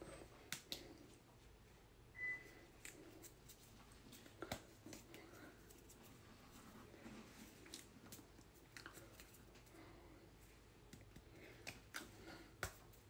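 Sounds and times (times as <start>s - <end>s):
short high beep: 2.2s - 2.5s.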